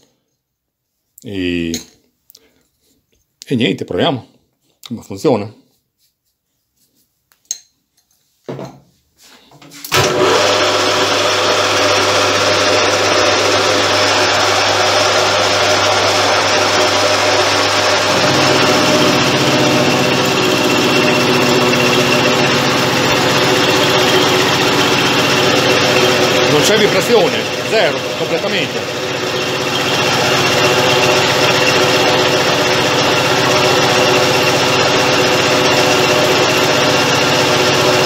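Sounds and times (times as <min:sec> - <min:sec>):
lathe milling metal: 0:10.0 - 0:38.0.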